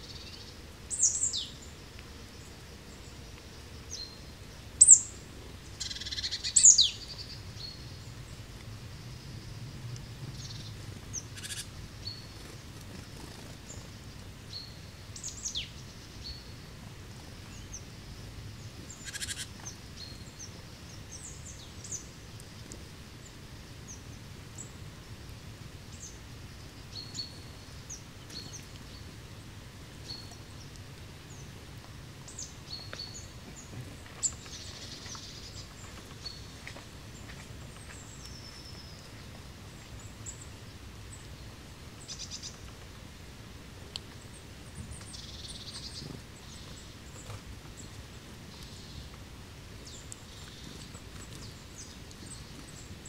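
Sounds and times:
songbirds chirping: 0:00.0 - 0:53.0
low steady rumble: 0:06.9 - 0:19.1.

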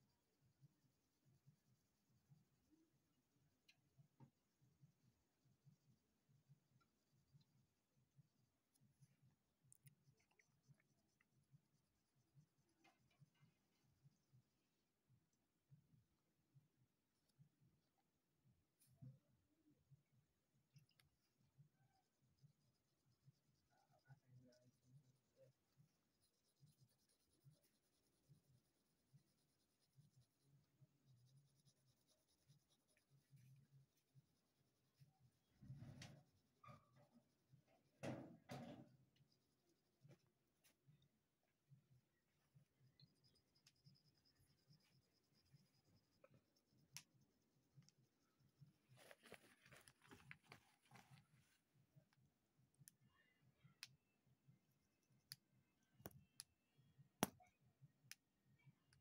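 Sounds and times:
pencil scratching on paper: 0:20.7 - 0:37.5, 0:43.2 - 0:51.6
click: 0:46.2 - 0:47.1, 0:56.0 - 0:56.5.

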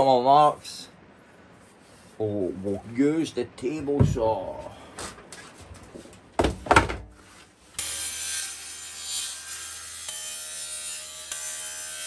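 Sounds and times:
loud knocks: 0:04.0 - 0:04.5, 0:06.4 - 0:07.1
table saw cutting wood: 0:07.8 - 0:12.0.

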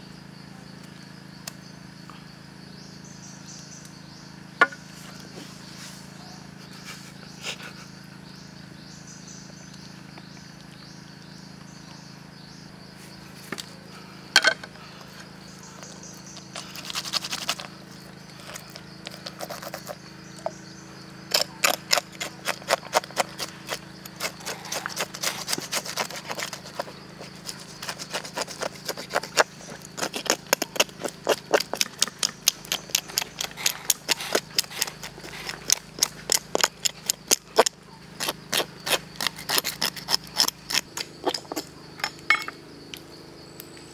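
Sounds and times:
knife scraping skin on board: 0:37.6 - 0:41.6.

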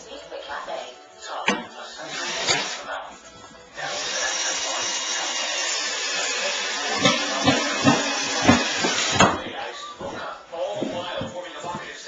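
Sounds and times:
power tool running: 0:02.0 - 0:02.8, 0:03.8 - 0:09.3.

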